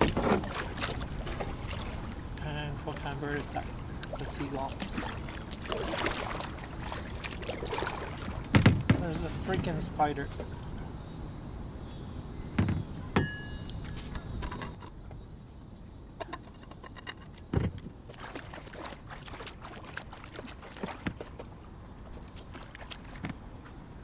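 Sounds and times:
paddle knocking on hull: 0.0s - 2.0s
water splashing against kayak: 0.0s - 9.8s, 18.0s - 23.8s.

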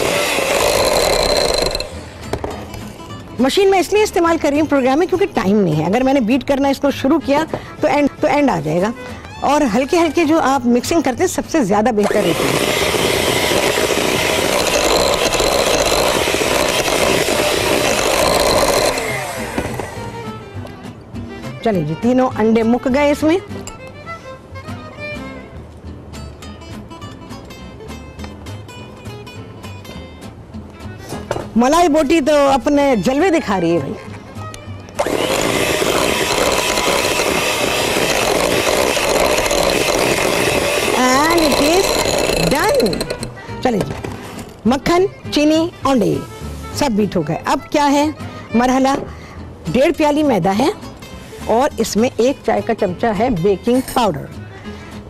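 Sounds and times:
electric hand mixer running: 0.0s - 2.2s, 12.0s - 20.2s, 35.0s - 43.4s.

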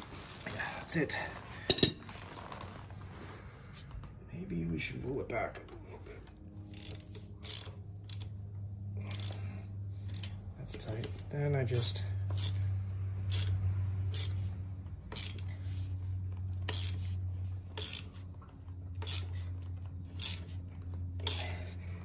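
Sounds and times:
steady low hum: 0.0s - 22.0s
ratchet clicking: 6.6s - 8.4s, 9.0s - 18.2s, 18.9s - 20.6s, 21.2s - 21.7s.

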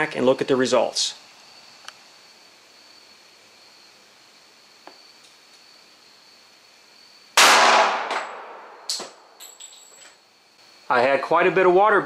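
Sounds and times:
gunshot echoing: 7.4s - 8.7s.

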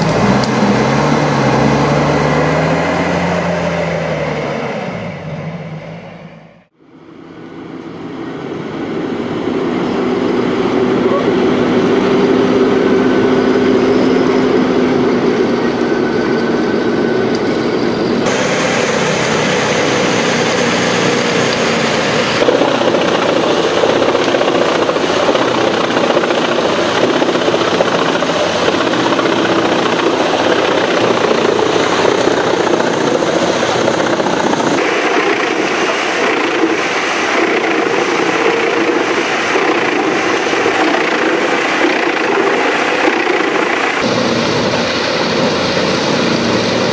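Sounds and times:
wood chipper grinding logs: 0.0s - 5.3s, 17.1s - 46.9s
engine drone: 0.0s - 46.9s.

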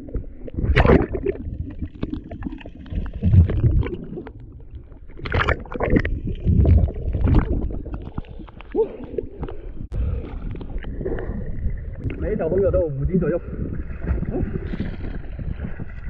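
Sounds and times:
muffled underwater gurgles: 10.0s - 16.0s.

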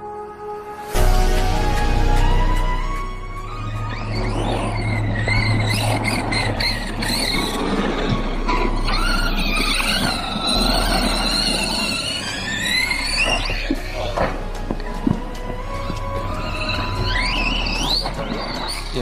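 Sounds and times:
rush of tyres and drivetrain: 0.8s - 19.0s
electric motor whining: 2.2s - 19.0s.

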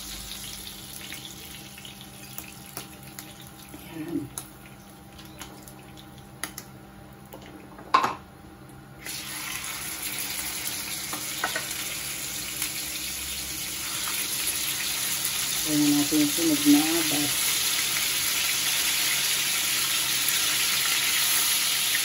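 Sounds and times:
fish sizzling in a frying pan: 0.0s - 3.7s, 9.0s - 22.0s.

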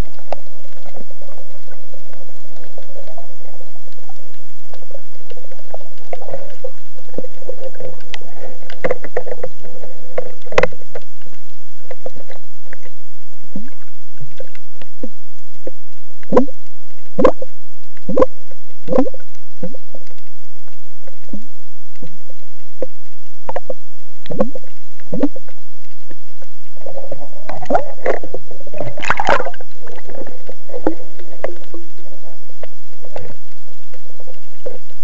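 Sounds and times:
faint steady hum: 0.0s - 35.0s
underwater splashing and gurgling: 0.0s - 35.0s
water slapping and sloshing: 26.8s - 32.1s.

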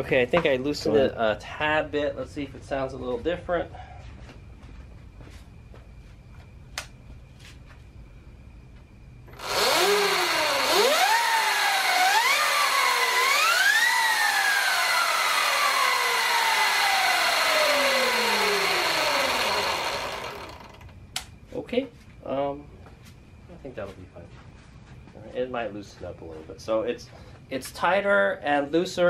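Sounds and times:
electric motor and chain whining: 9.3s - 21.0s.

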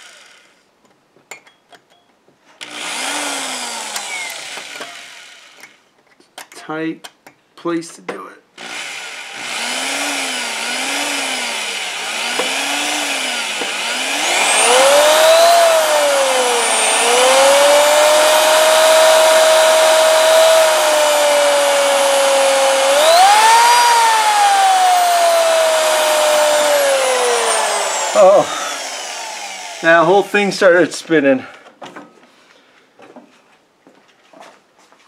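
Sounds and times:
electric drill whining: 0.0s - 0.6s, 2.6s - 5.8s, 8.6s - 30.3s.

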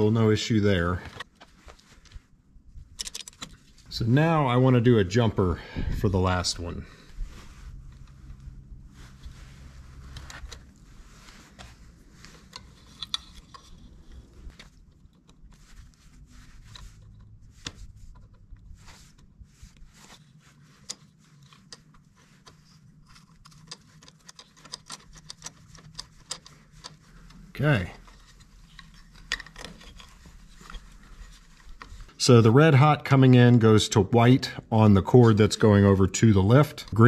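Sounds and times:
wires worked into junction box: 6.2s - 32.3s.

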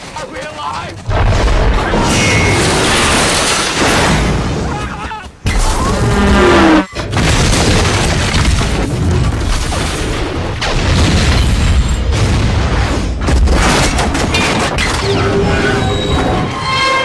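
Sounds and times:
explosions: 1.0s - 4.8s, 5.4s - 15.0s
crashing wreckage: 1.0s - 16.5s.

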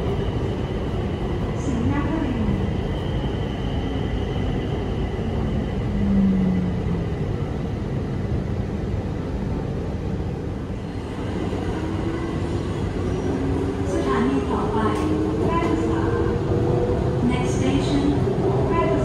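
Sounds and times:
metro train car rumble: 0.0s - 19.0s
low hum: 5.7s - 7.5s.

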